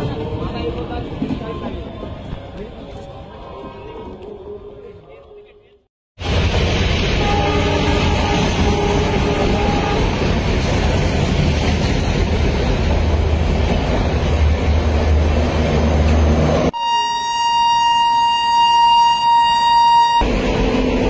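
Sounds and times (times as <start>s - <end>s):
train rolling on rails: 0.0s - 5.1s, 6.2s - 16.8s, 20.2s - 21.0s
train horn: 7.2s - 10.2s, 16.8s - 20.2s.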